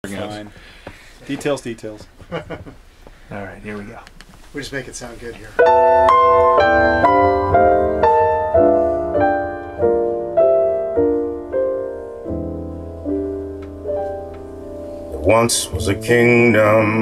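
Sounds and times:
slow piano chords over loudspeakers: 0:05.6 - 0:17.0.

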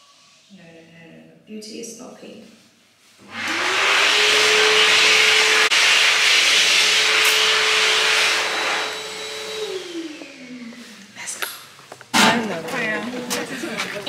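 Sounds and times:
loud rushing air: 0:03.2 - 0:10.4
electric blower motor whine: 0:03.2 - 0:11.1.

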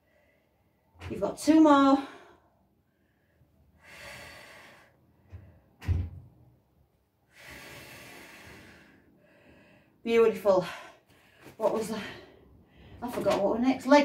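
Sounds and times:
dull thump: 0:05.3 - 0:06.3.

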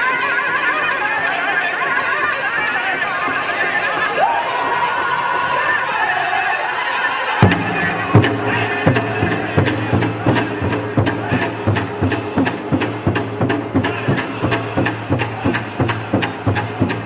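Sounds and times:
group singing: 0:02.9 - 0:17.0
big drum booming strokes: 0:07.4 - 0:17.0.

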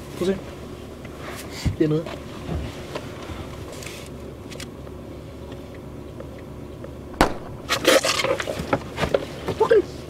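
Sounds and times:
gunshot: 0:07.2 - 0:07.8.

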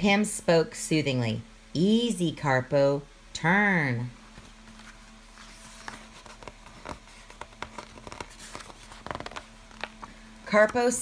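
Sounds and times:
book pages rustling: 0:04.3 - 0:11.0.

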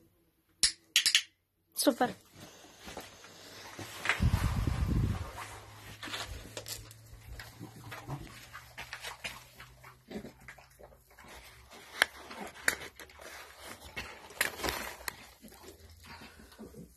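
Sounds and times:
newspaper rustling and crackling: 0:11.8 - 0:15.6.

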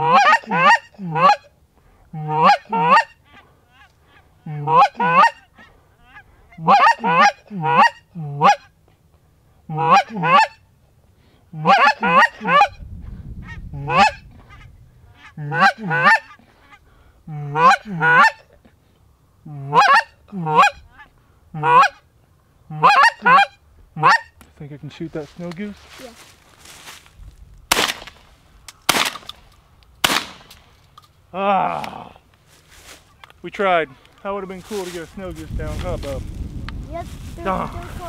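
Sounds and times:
goose honking: 0:00.0 - 0:01.5, 0:02.1 - 0:08.7, 0:09.7 - 0:10.7, 0:11.5 - 0:12.8, 0:13.4 - 0:18.6, 0:19.5 - 0:22.1, 0:22.7 - 0:24.4.

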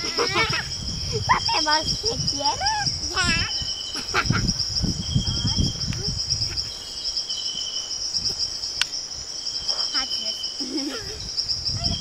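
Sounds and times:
insects chirring: 0:00.0 - 0:12.0.

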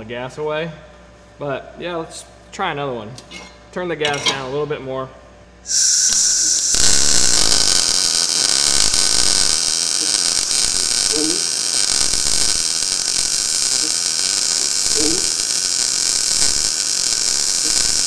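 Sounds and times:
welder arc crackling: 0:05.7 - 0:18.0.

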